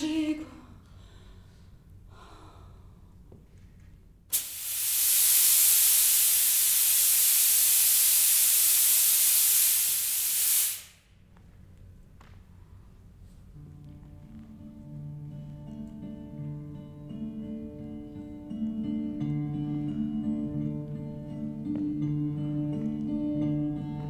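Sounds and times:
fog machine hissing: 0:04.3 - 0:11.0.

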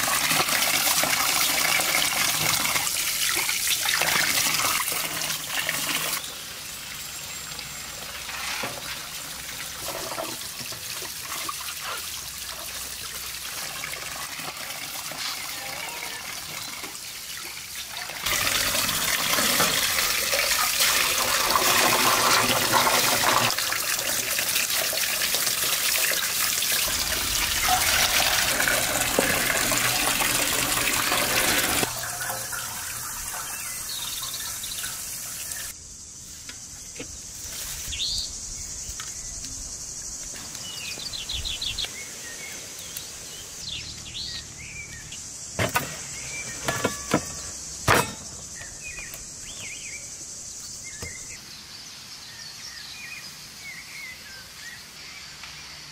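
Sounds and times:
water running and splashing: 0:00.0 - 0:35.8
birds chirping: 0:26.8 - 0:35.8, 0:37.9 - 0:55.9.

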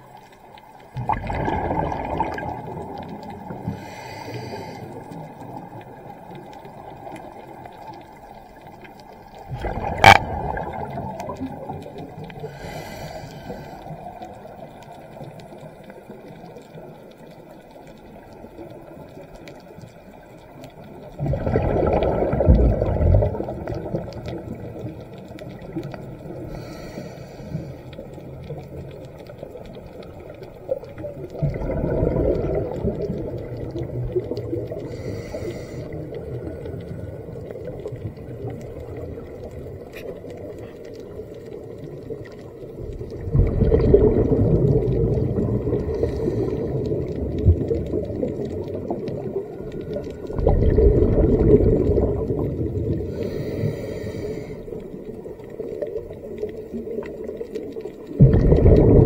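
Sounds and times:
bursts of bubbles underwater: 0:00.9 - 0:03.8, 0:09.4 - 0:12.8, 0:21.0 - 0:26.5, 0:30.6 - 0:35.1, 0:42.8 - 0:53.4, 0:54.7 - 0:59.0
regulator inhale hiss: 0:03.6 - 0:05.3, 0:12.4 - 0:14.1, 0:26.4 - 0:28.1, 0:34.8 - 0:36.2, 0:45.9 - 0:47.0, 0:53.0 - 0:54.9.

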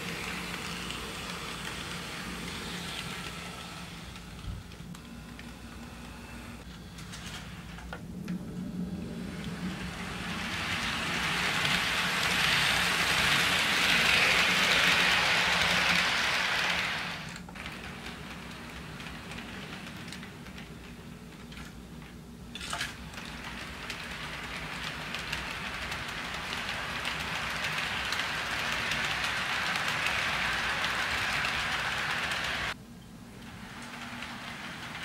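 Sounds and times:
model train wheels clattering: 0:00.0 - 0:08.4, 0:09.2 - 0:32.8, 0:33.4 - 0:35.0.

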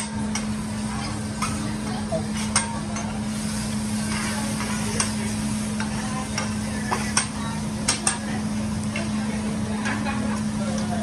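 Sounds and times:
food sizzling on a griddle: 0:00.0 - 0:11.0
steady hum: 0:00.0 - 0:11.0.

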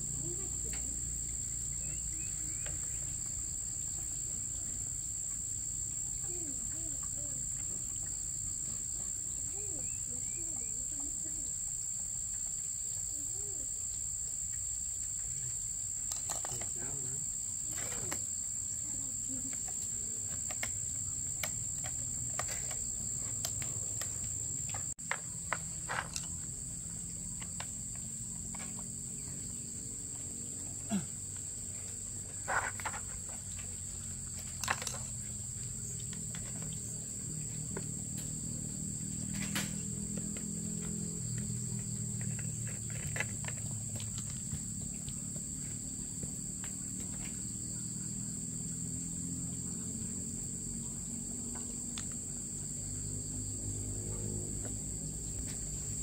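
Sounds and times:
high-pitched insect drone: 0:00.0 - 0:31.6.

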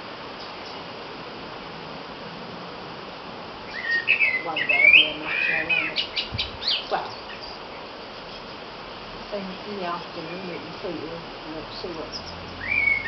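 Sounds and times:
blue tits calling: 0:03.6 - 0:13.0.

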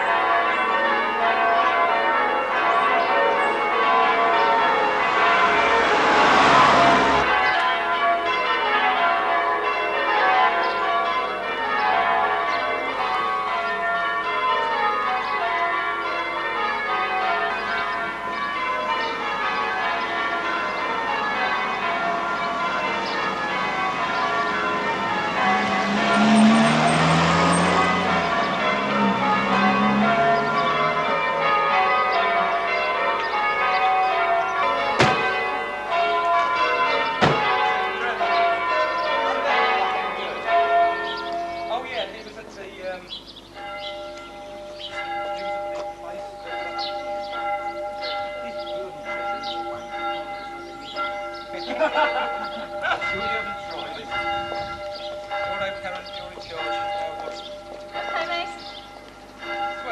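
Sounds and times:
church bells ringing: 0:00.0 - 0:59.9
car passing: 0:04.2 - 0:08.0, 0:21.2 - 0:31.9.

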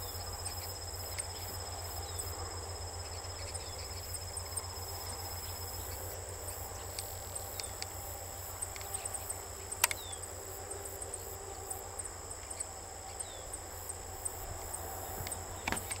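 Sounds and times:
high-pitched insect trill: 0:00.0 - 0:16.0.

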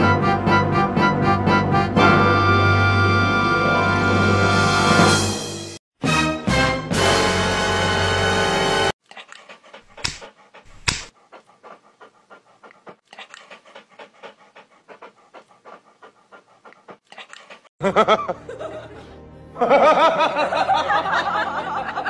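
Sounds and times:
dog panting: 0:09.0 - 0:17.7.

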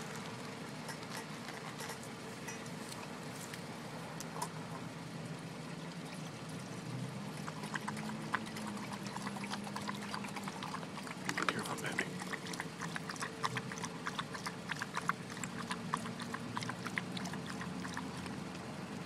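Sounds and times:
dog drinking from bowl: 0:00.8 - 0:02.6, 0:07.1 - 0:19.0.

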